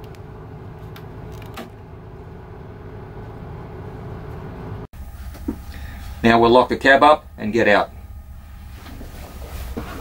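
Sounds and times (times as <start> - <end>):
diesel locomotive idling hum: 0.0 - 10.0.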